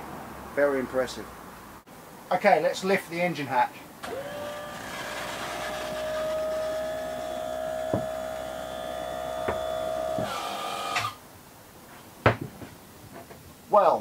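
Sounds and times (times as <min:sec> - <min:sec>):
electric motor whine: 0:04.0 - 0:11.2.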